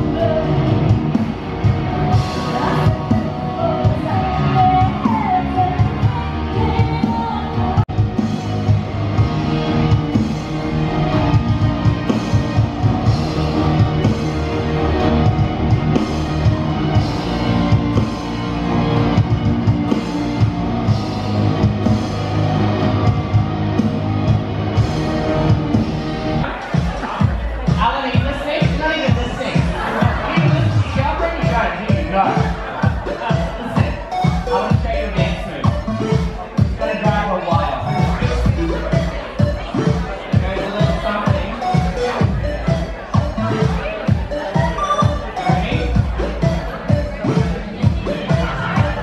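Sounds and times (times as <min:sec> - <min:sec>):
person singing: 0:00.0 - 0:01.2, 0:02.1 - 0:08.4
drums: 0:00.0 - 0:49.0.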